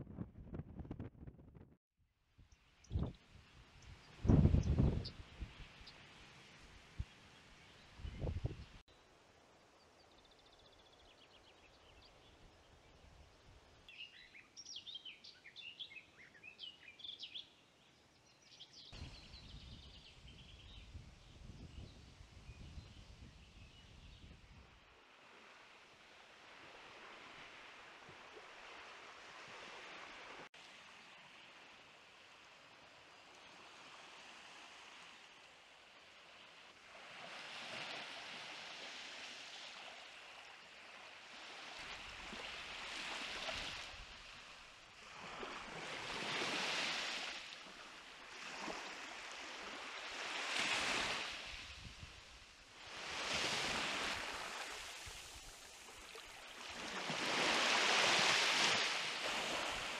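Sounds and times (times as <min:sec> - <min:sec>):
small waves washing on sand: 0:24.8 - 0:59.9.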